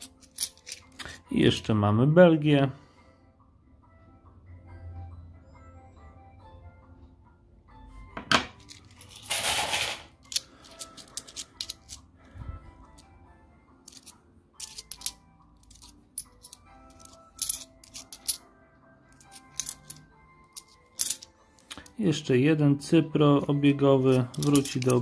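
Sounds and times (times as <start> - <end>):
coins clinking: 0.0 - 1.6, 8.5 - 12.1, 13.8 - 18.5, 19.1 - 22.0, 24.0 - 25.0
quiet background music: 0.0 - 25.0.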